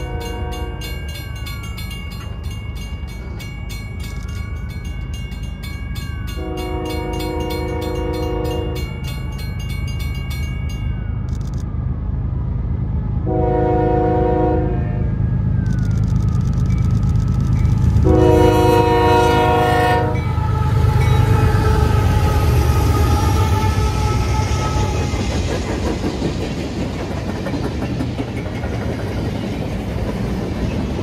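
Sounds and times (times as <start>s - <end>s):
train horn blasts: 0.0s - 1.0s, 6.4s - 9.0s, 13.3s - 15.2s, 18.0s - 25.2s
crossing bell dinging: 0.0s - 11.5s, 16.6s - 23.0s.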